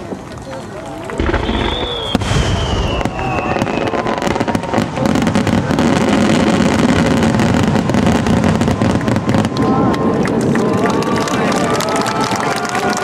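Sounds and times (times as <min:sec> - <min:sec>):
crackling fireworks pops: 0:00.0 - 0:11.3
fireworks shells bursting: 0:01.2 - 0:04.1
falling firework whistle: 0:01.2 - 0:06.7.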